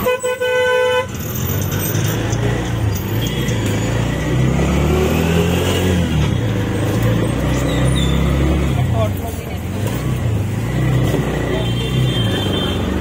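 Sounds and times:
vehicle horn: 0.0 - 1.2, 11.5 - 13.0
traffic noise: 0.0 - 13.0
vehicle engine accelerating: 1.1 - 13.0.

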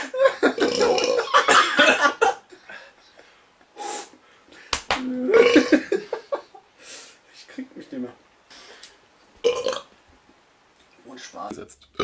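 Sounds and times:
men laughing: 0.0 - 3.3, 5.2 - 6.8.

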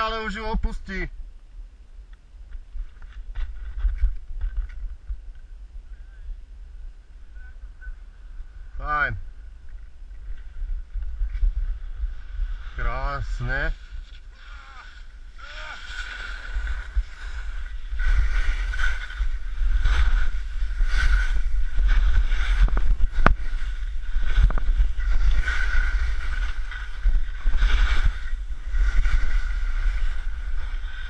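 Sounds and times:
wind rumble on microphone: 0.0 - 31.0
skis scraping across snow: 9.6 - 31.0.

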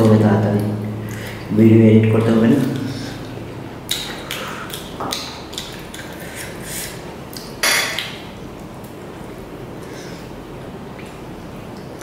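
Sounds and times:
people chewing and sucking meat: 3.8 - 7.6.

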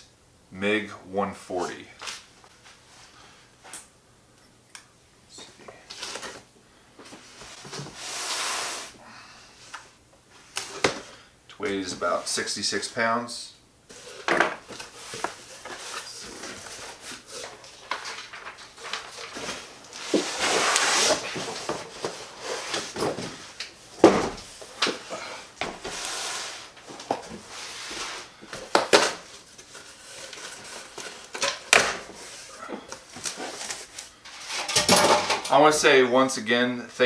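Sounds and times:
cardboard scraping and rustling: 13.9 - 25.0.

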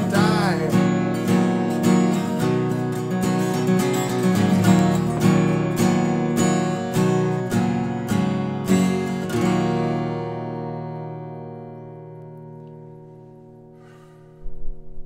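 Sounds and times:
acoustic guitar strumming: 0.0 - 14.9.

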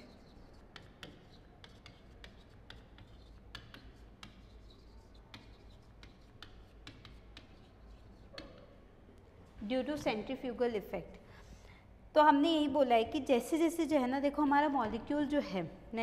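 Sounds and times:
chalk tapping and scraping on chalkboard: 0.0 - 8.9.

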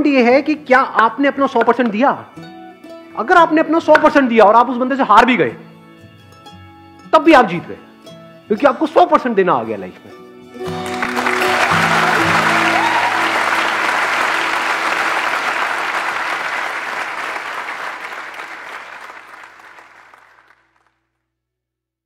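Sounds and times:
music: 0.0 - 20.8
audience clapping: 10.6 - 21.0.

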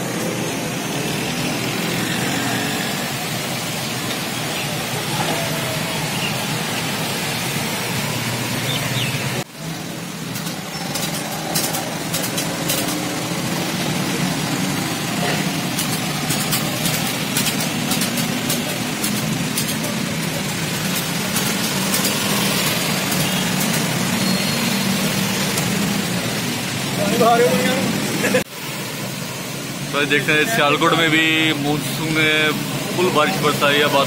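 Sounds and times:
bikes riding through floodwater: 0.0 - 34.0
heavy rain: 0.0 - 34.0
motorcycle engine running: 9.9 - 26.7.

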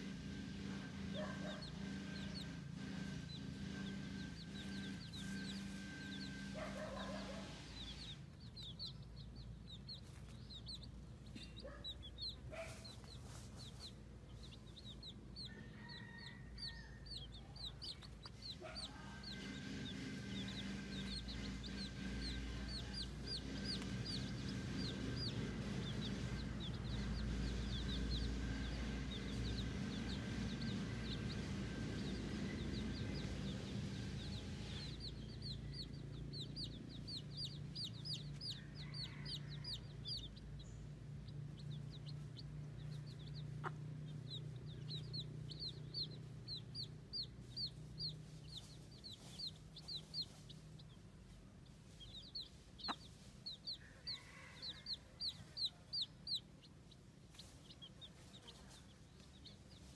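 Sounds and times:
baby chicks peeping: 0.0 - 59.9
low steady hum: 0.0 - 59.9.

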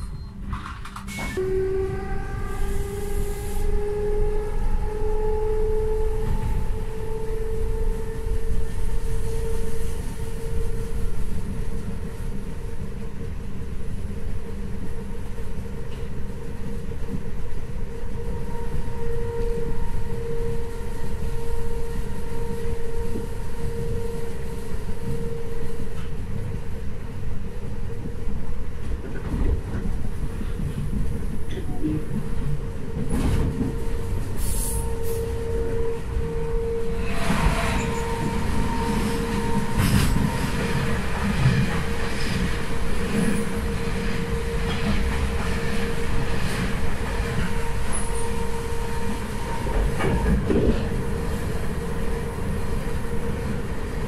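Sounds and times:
train wheels rumbling on track: 0.0 - 54.0
train traction motor whine: 1.2 - 11.4, 32.8 - 53.9.

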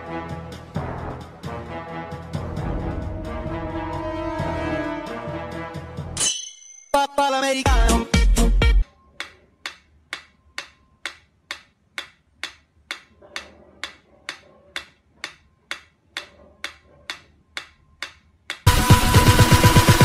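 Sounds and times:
metronome ticking: 9.1 - 13.1, 13.8 - 18.8.

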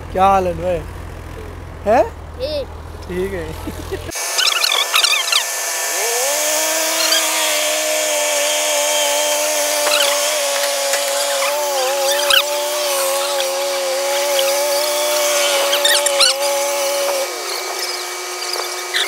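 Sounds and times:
drilling rig motor whine: 3.0 - 19.0
short high squeaks: 4.1 - 5.6, 6.9 - 7.6, 9.8 - 19.0.

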